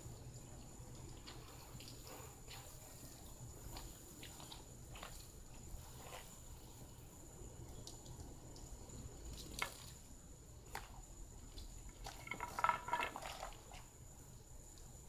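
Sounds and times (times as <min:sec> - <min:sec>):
hose water spraying: 0:01.0 - 0:07.0.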